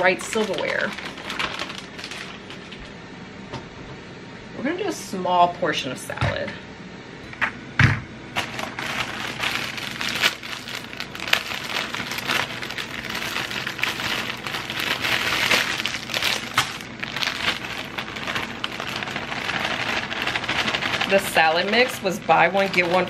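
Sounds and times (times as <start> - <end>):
plastic packaging crinkling: 0.0 - 2.9, 8.4 - 23.0.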